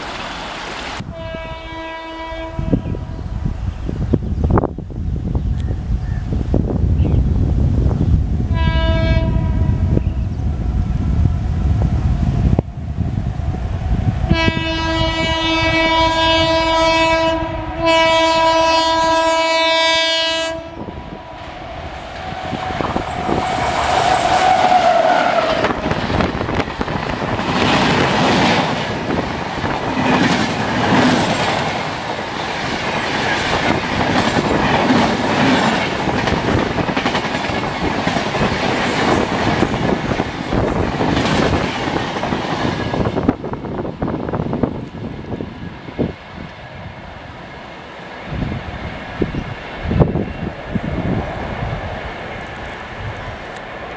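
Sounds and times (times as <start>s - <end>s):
train passing on rails: 0.0s - 53.9s
locomotive horn blasts: 1.1s - 2.9s, 8.5s - 9.8s, 14.3s - 21.0s.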